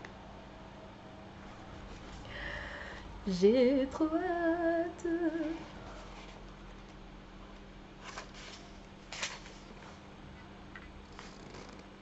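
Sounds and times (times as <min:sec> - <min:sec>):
woman singing: 0:03.3 - 0:05.8.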